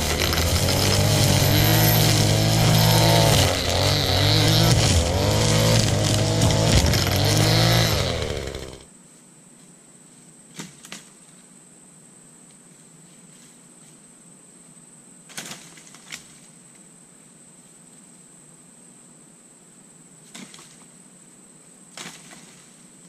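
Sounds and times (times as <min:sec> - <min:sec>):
string trimmer engine revving: 0:00.0 - 0:08.9.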